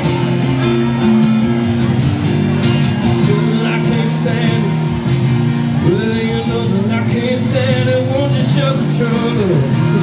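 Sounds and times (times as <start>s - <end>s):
acoustic guitars playing: 0.0s - 10.0s
man singing: 3.0s - 10.0s.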